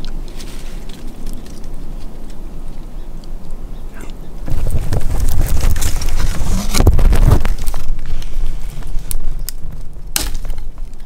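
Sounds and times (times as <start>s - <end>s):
clicks and rustles: 0.0s - 3.6s, 4.4s - 11.0s
wind buffeting microphone: 0.8s - 11.0s.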